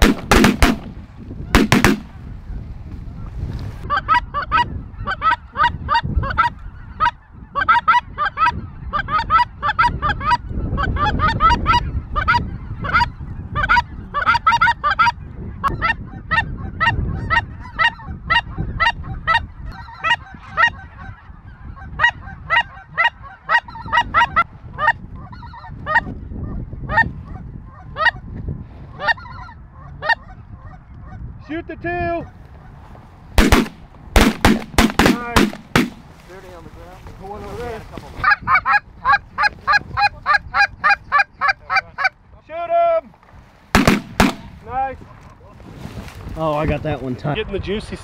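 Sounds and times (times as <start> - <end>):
geese honking and cackling: 3.2 - 28.3, 28.9 - 31.2, 33.4 - 42.2.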